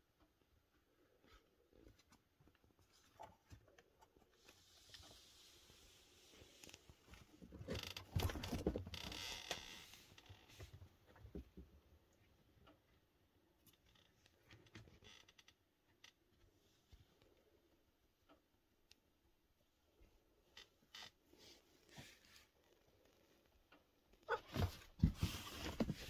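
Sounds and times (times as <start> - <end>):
rustling and scraping: 1.1 - 11.5, 21.2 - 23.5, 24.2 - 26.0.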